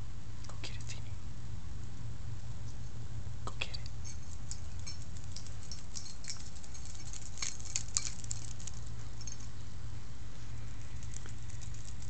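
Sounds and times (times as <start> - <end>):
steady low hum: 0.0 - 12.0
dog claws clicking on concrete: 4.1 - 9.4, 10.8 - 12.0.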